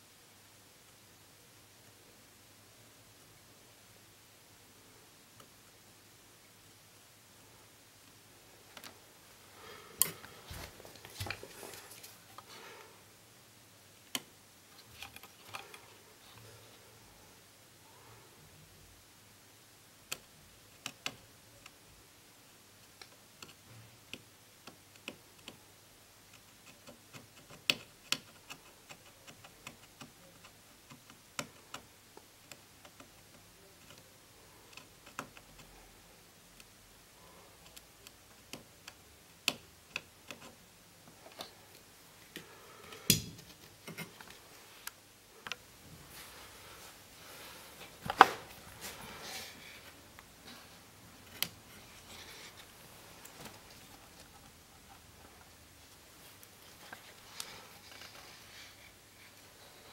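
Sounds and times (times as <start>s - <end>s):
hand tool clicking on circuit board: 26.3s - 34.0s.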